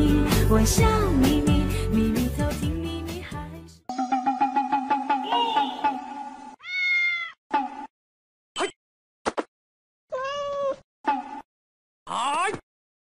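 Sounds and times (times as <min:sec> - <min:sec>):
cats meowing: 0:06.6 - 0:07.4, 0:10.1 - 0:10.8
kittens high squeaks: 0:06.6 - 0:07.4.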